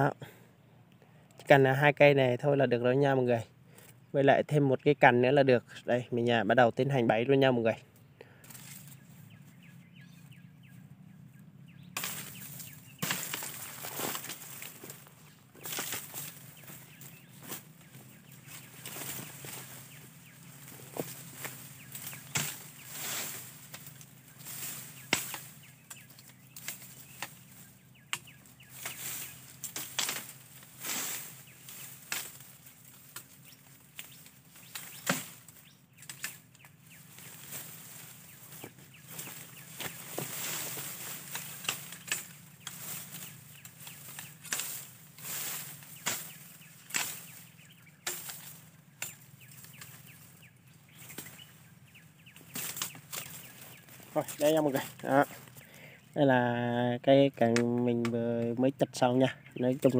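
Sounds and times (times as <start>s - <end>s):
bamboo leaves rustling: 8.2s - 59.9s
machete chopping bamboo: 11.9s - 19.9s, 20.6s - 38.0s, 38.6s - 50.2s.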